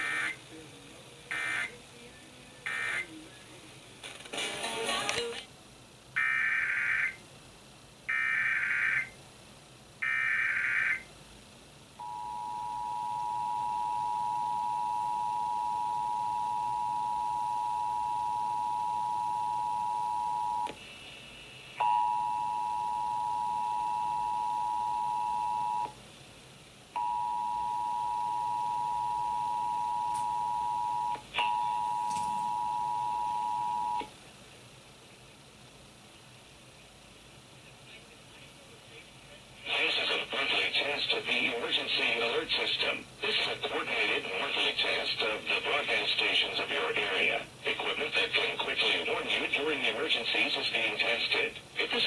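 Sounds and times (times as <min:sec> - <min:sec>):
digital data bursts: 0:01.3 - 0:01.8
two-tone attention signal: 0:12.0 - 0:20.7.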